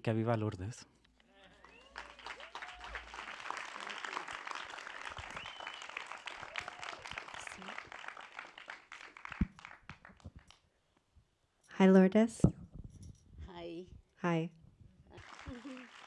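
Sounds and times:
audience applauding: 0:01.4 - 0:10.4, 0:15.2 - 0:16.0.

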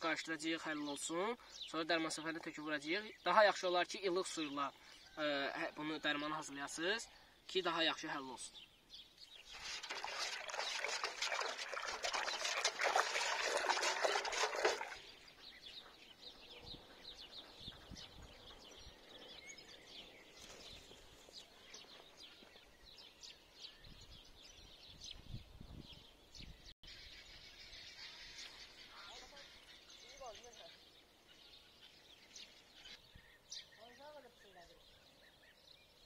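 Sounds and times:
faint birds chirping: 0:00.0 - 0:36.0
liquid sloshing in a metal bucket: 0:09.4 - 0:15.2.

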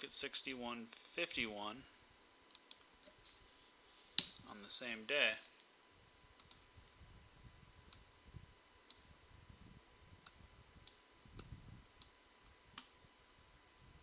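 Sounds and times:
low room rumble: 0:00.0 - 0:14.0
computer mouse clicks: 0:02.5 - 0:02.9, 0:06.4 - 0:06.7.

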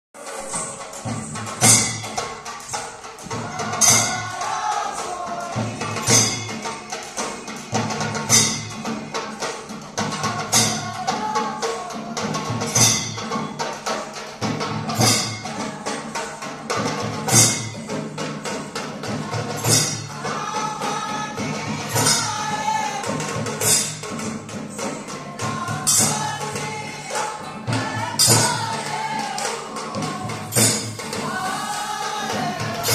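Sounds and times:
drum-led music: 0:00.2 - 0:32.9
person singing: 0:25.1 - 0:32.9.

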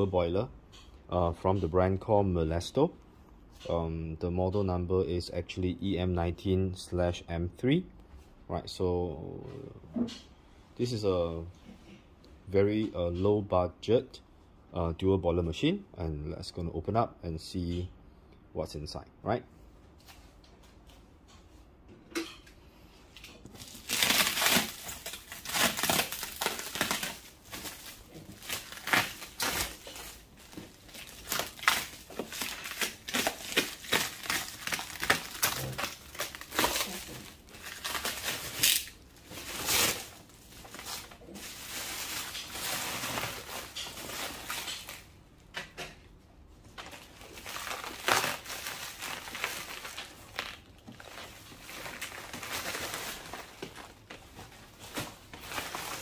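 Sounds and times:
plastic wrap crinkling and tearing: 0:23.2 - 0:45.1, 0:46.7 - 0:56.0.

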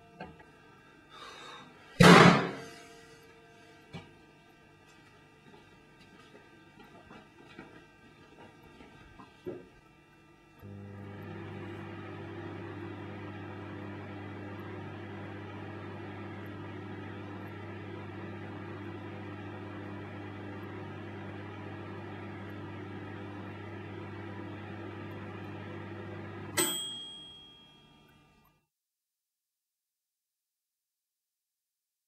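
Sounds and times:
microwave oven humming: 0:00.0 - 0:28.5
timer bell ding: 0:26.6 - 0:28.2.

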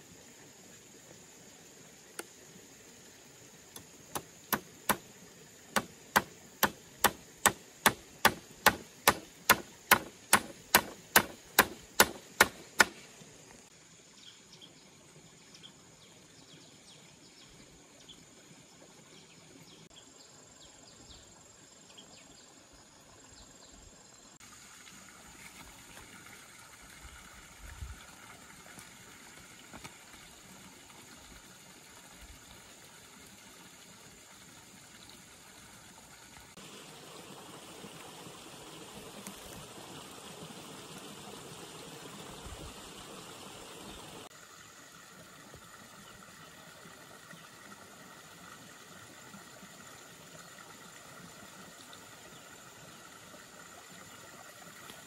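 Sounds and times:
faint insect chirps: 0:00.0 - 0:30.4
hammering on bamboo poles: 0:04.1 - 0:05.0, 0:05.8 - 0:13.0.

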